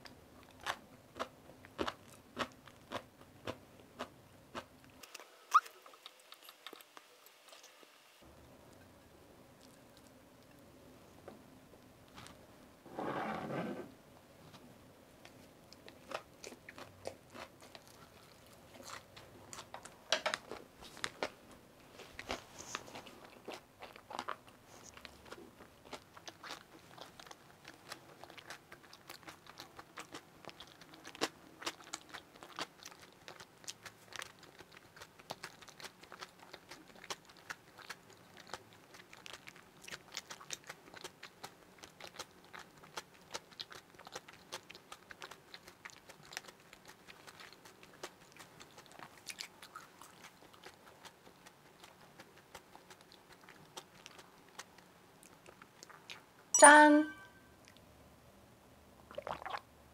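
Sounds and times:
close chewing: 0.0s - 7.7s, 15.2s - 56.5s
mouth and teeth clicks: 22.2s - 56.3s.

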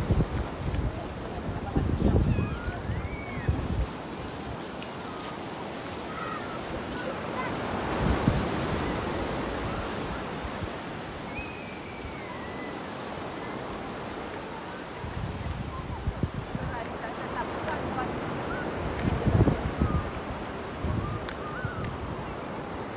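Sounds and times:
surf washing onto beach: 0.0s - 22.9s.

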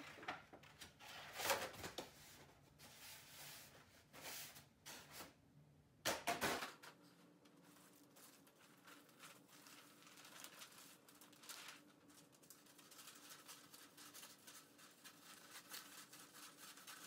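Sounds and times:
wrapping paper crinkling: 7.6s - 17.0s.

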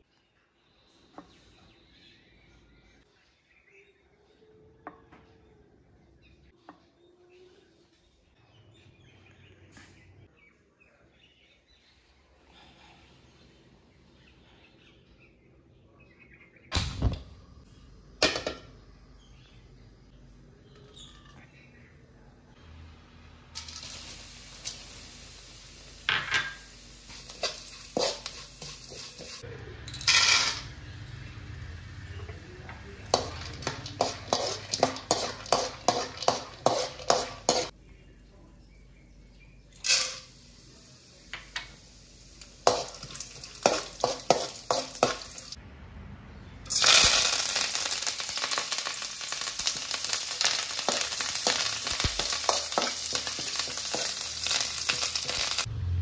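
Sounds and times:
leaves frying in hot oil: 23.2s - 37.7s, 39.8s - 45.6s, 46.7s - 55.7s
spatula scraping in a pan: 27.1s - 29.4s, 33.0s - 37.7s, 42.6s - 45.6s, 47.6s - 55.7s.

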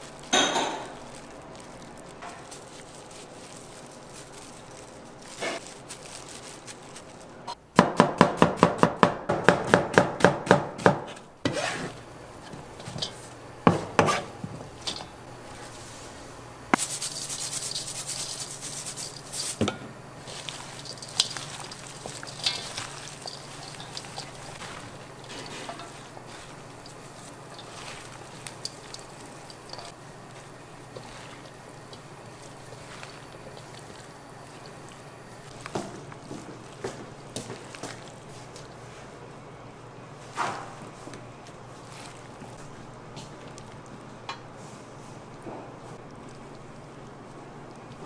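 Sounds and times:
knife chopping on cutting board: 7.8s - 11.8s
steady hiss: 15.6s - 35.6s.

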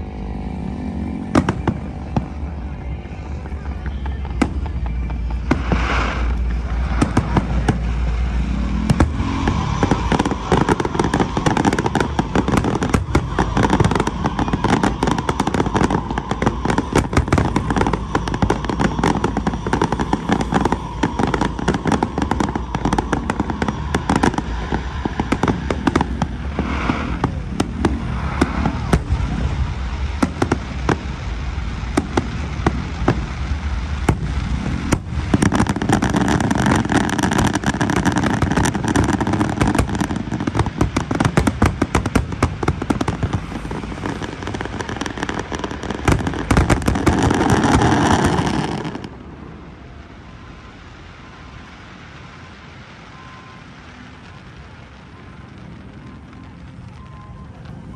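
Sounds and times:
fireworks bursts banging: 0.0s - 57.9s.

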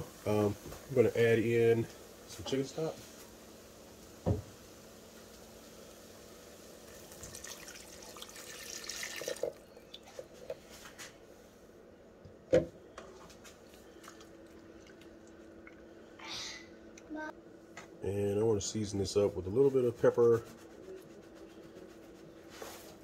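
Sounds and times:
stock pouring into hot skillet: 6.7s - 10.2s.

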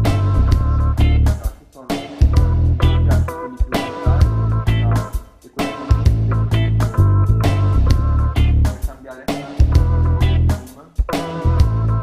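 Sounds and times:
music with drum beat and bass: 0.0s - 12.0s.

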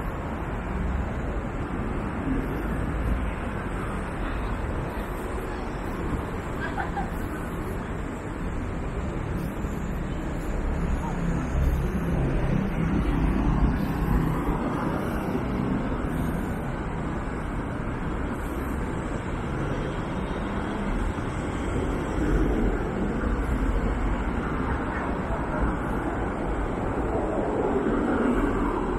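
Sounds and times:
road traffic rumble: 0.0s - 28.9s.

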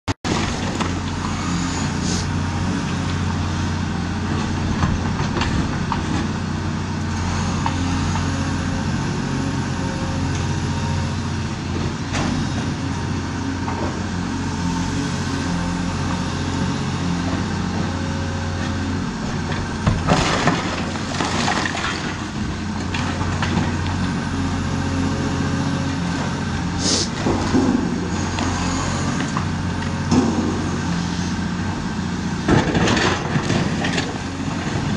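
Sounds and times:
excavator diesel engine running: 0.3s - 34.9s
breaking masonry crashing: 19.4s - 23.8s.

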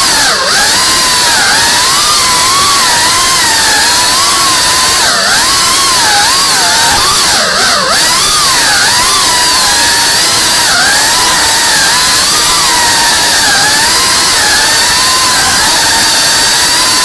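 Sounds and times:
drone motors and propellers whining: 0.0s - 17.0s.

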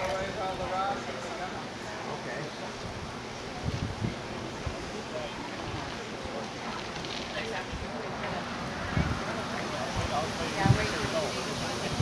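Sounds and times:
outdoor background hiss: 0.0s - 12.0s
wind buffeting microphone: 2.9s - 4.8s, 8.6s - 12.0s.

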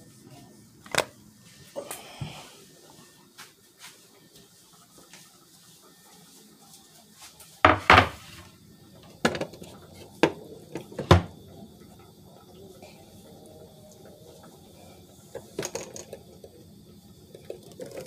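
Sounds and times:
knocks on kitchenware: 7.7s - 8.3s
pots and dishes clattering: 7.7s - 8.4s.

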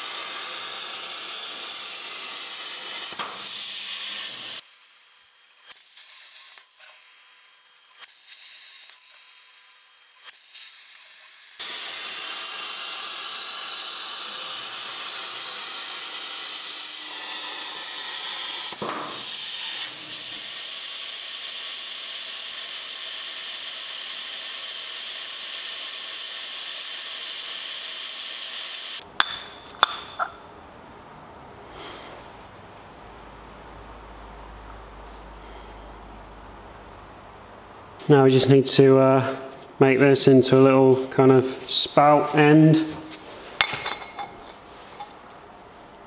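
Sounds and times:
plasma cutter torch hissing: 0.0s - 30.2s
sharp metal clinks: 29.2s - 30.5s.

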